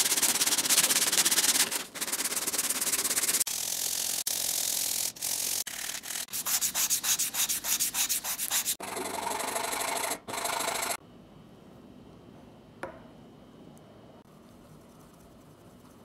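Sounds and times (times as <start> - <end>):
sandpaper rubbing on wood: 0.0 - 8.8.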